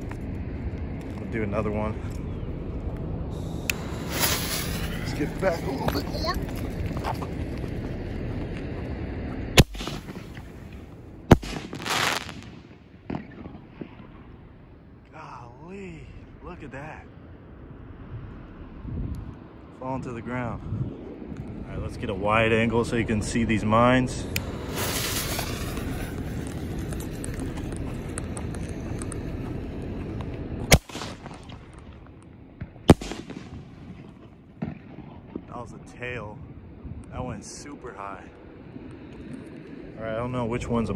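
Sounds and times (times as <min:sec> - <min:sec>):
hiss with faint crackles: 0:03.0 - 0:06.2, 0:09.6 - 0:12.8, 0:23.4 - 0:32.0
brief hiss: 0:03.4 - 0:05.1, 0:24.7 - 0:26.2
firework shell bursting: 0:03.6 - 0:05.0, 0:09.6 - 0:10.5, 0:11.3 - 0:13.5, 0:24.6 - 0:26.3, 0:32.9 - 0:34.0
firework shell bang: 0:09.6 - 0:10.4, 0:11.3 - 0:13.6.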